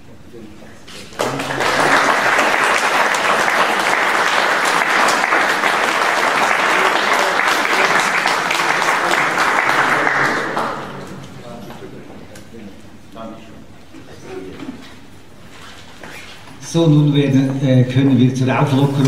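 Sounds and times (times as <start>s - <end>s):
audience applauding: 1.2s - 11.3s.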